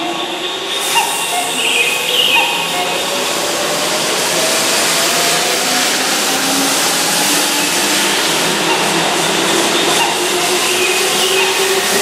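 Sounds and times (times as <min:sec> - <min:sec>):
electric train running: 0:00.0 - 0:12.0.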